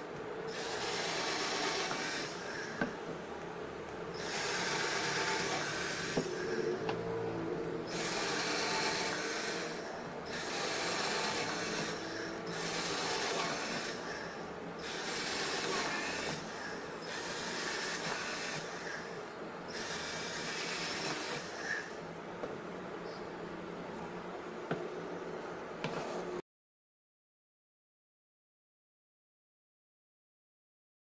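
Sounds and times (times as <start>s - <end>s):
cordless drill boring into wood: 0.5s - 3.0s, 4.2s - 7.0s, 7.9s - 22.0s.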